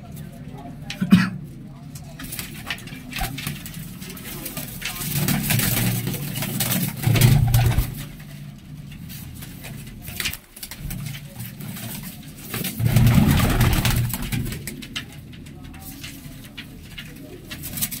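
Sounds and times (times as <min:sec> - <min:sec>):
pigeons cooing: 0:03.2 - 0:08.3.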